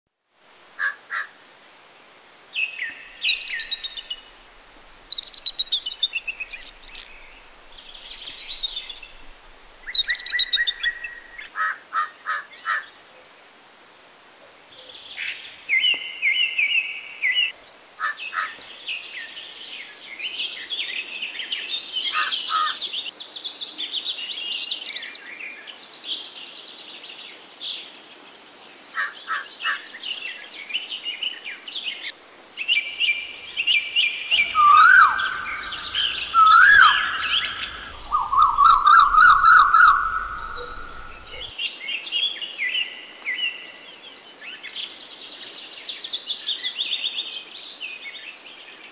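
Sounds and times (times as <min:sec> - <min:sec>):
small birds chirping and singing: 0:02.5 - 0:11.6, 0:14.6 - 0:48.9.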